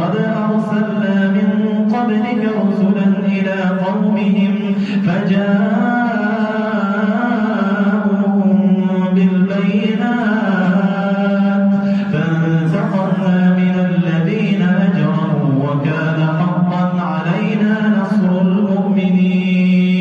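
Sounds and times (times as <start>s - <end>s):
man chanting melodically: 0.0s - 20.0s
breaths: 4.6s - 5.1s, 11.6s - 12.2s.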